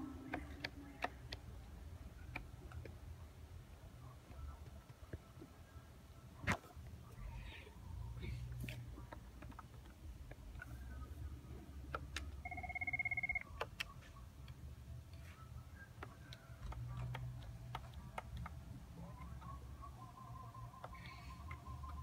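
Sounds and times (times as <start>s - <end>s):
electronic phone ringtone trill: 12.4s - 13.4s.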